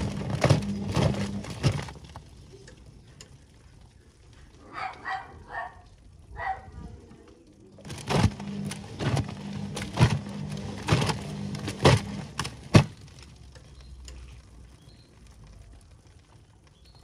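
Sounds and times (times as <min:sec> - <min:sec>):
washing machine motor hum: 0:00.0 - 0:02.0, 0:07.6 - 0:13.0
wet laundry thudding in drum: 0:09.9 - 0:13.0.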